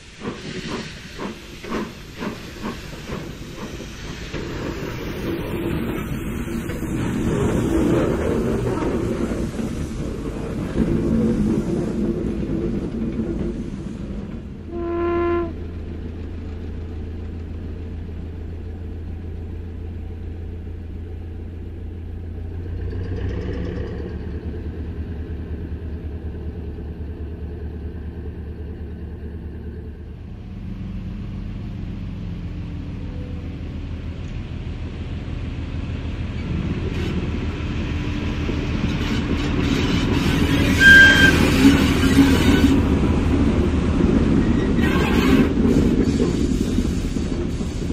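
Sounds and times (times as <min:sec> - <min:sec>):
diesel locomotive approaching: 0:00.0 - 0:47.9
diesel railcar engine droning: 0:00.0 - 0:47.9
brief wheel squeal: 0:39.0 - 0:42.8.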